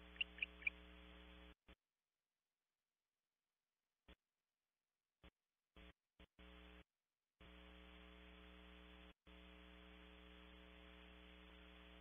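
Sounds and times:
electrical mains hum: 0.0 - 1.6, 7.4 - 12.0.

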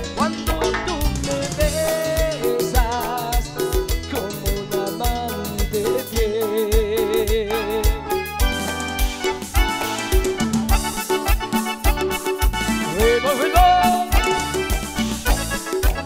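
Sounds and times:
low drum beat: 0.0 - 11.0
live band playing dance music: 0.0 - 16.0.

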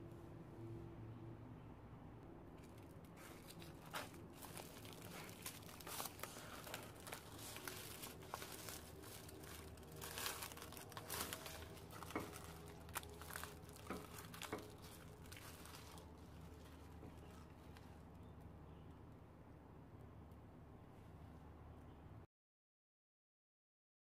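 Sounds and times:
sharp little crackles: 2.6 - 18.0
dried leaves rustling in water: 2.6 - 18.1.

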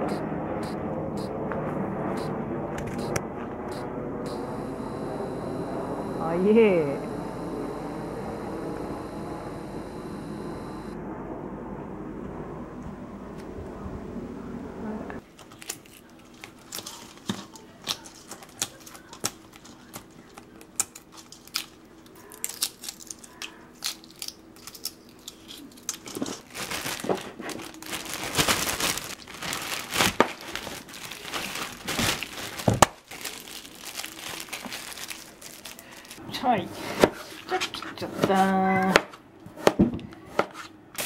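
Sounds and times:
jet engine rumble: 0.0 - 15.2
eggshells cracking: 15.3 - 36.2
plastic bag crinkling: 15.3 - 36.2.

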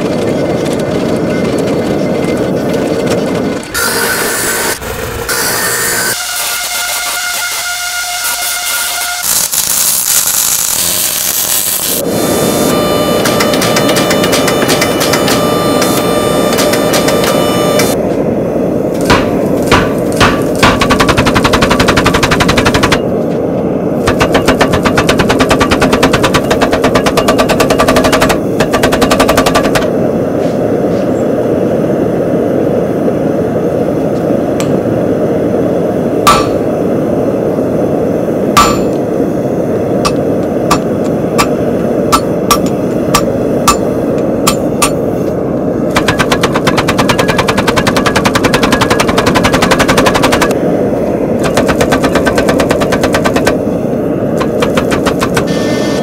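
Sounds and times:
power hammer pounding steel: 12.8 - 17.9, 19.0 - 23.0, 24.0 - 29.9, 36.2 - 36.7, 38.6 - 39.0, 40.0 - 45.0, 45.9 - 50.6, 51.4 - 53.6, 54.4 - 55.7
hand hammer striking anvil: 36.3 - 36.6, 38.6 - 39.0, 40.7 - 45.0.

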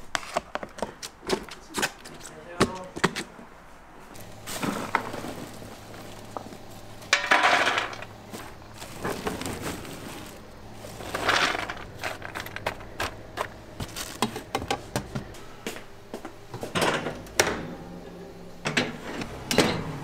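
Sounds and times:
walnuts rustling in plastic bag: 4.2 - 14.5.

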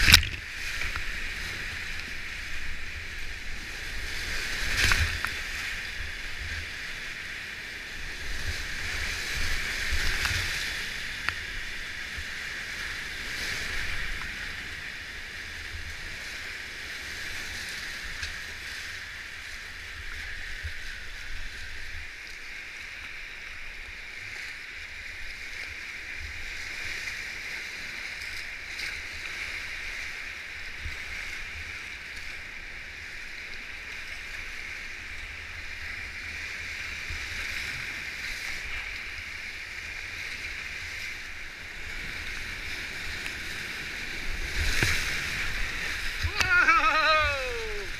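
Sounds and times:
whitewater roar: 40.1 - 47.9
water splashing: 42.0 - 47.9.

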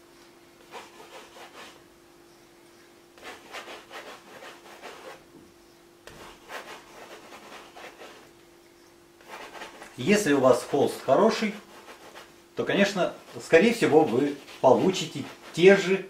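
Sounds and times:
palette knife scraping paint on canvas: 0.6 - 1.8, 3.2 - 5.2, 6.1 - 8.3, 9.2 - 15.9.

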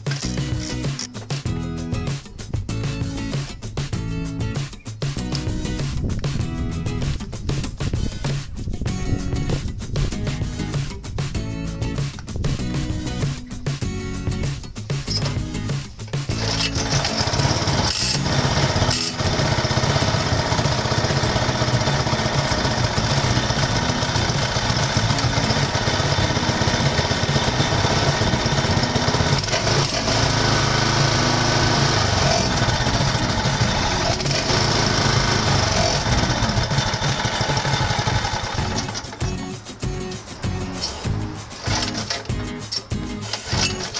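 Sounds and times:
recoil starter rope pull: 16.1 - 39.3, 41.6 - 43.9
small engine running: 16.3 - 39.4, 41.5 - 42.3, 43.3 - 43.9.

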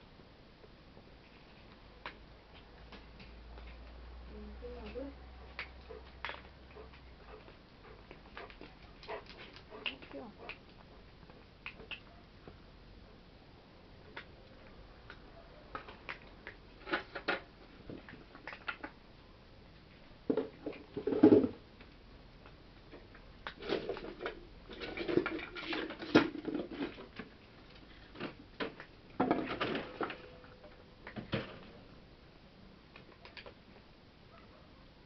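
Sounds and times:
cats moving about: 4.9 - 12.6.

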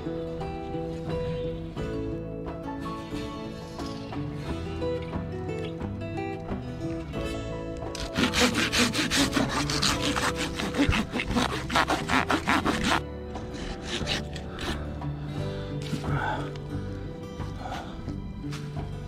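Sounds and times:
hand saw cutting log: 7.9 - 14.9.

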